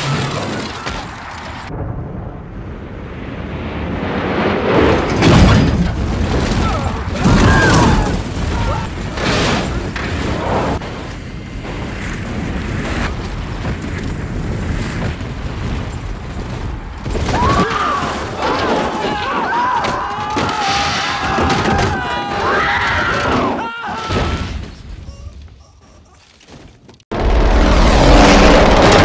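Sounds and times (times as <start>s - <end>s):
passengers screaming: 6.6s - 8.9s, 17.3s - 25.3s
loud rumbling roar: 27.1s - 29.0s.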